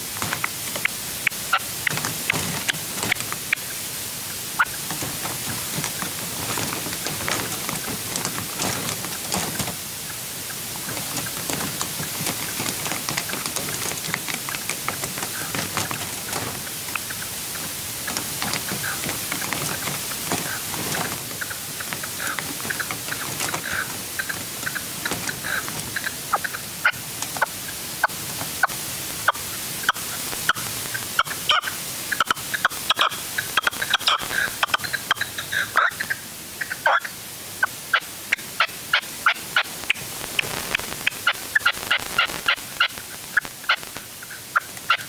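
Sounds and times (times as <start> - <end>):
steady hiss: 0.0 - 45.0
small clicks and ticks: 0.1 - 3.8, 4.6 - 31.0.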